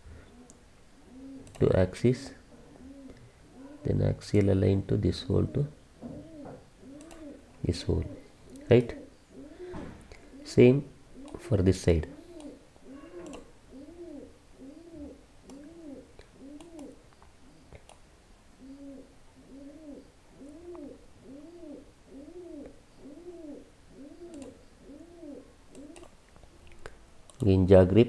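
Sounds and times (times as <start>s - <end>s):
pigeon cooing: 0.2s - 1.6s, 2.5s - 4.0s, 5.2s - 11.4s, 12.0s - 17.7s, 18.6s - 26.1s
faint clicks: 1.4s - 1.7s, 6.9s - 7.3s, 12.3s - 12.6s, 13.2s - 13.5s, 15.4s - 18.0s, 24.3s - 24.6s, 25.7s - 27.5s.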